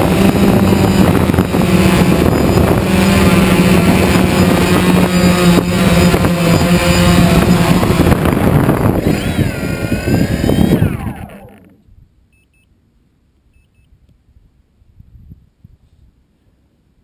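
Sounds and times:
drone motors whining: 0.0 - 11.9.

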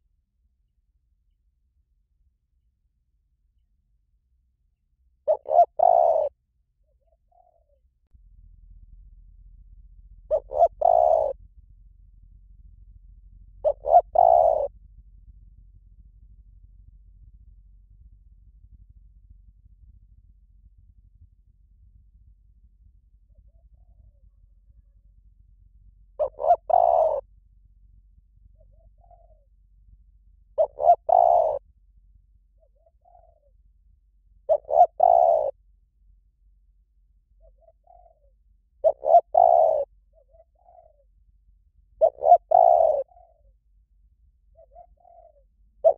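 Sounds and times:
dove cooing: 5.2 - 6.4, 7.0 - 7.8, 10.3 - 11.4, 13.5 - 14.8, 23.2 - 25.1, 26.1 - 27.3, 28.4 - 29.6, 30.6 - 31.6, 32.6 - 33.6, 34.4 - 35.6, 37.4 - 41.1, 41.9 - 43.6, 44.4 - 45.9.

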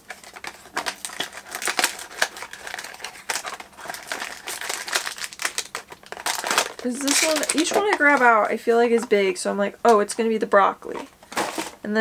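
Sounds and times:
packaging crinkling: 0.0 - 9.1.

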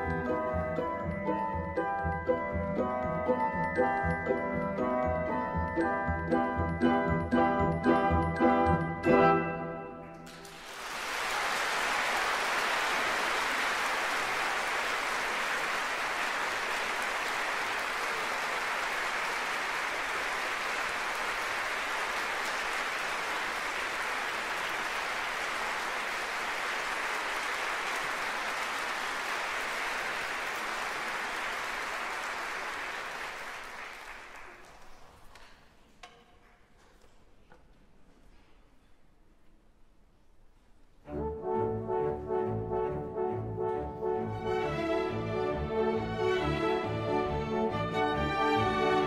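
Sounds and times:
audience applauding: 10.2 - 35.1.

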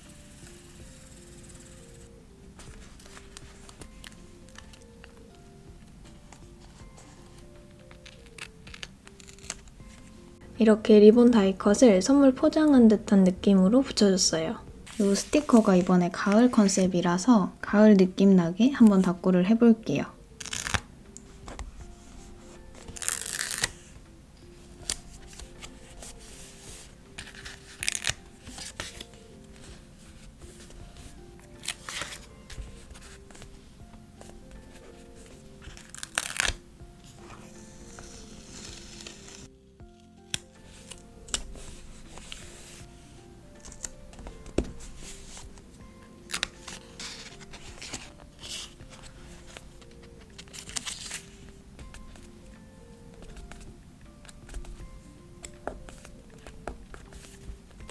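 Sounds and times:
soft background music: 0.0 - 57.9
paper rustling: 2.6 - 5.2, 14.9 - 15.9, 24.8 - 33.6, 46.3 - 52.3, 55.6 - 57.5.

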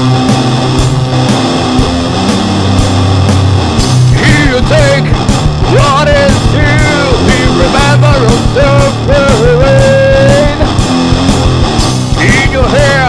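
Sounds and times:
heavy metal band playing: 0.0 - 13.0
pitch-bending lead guitar line: 0.0 - 13.0.

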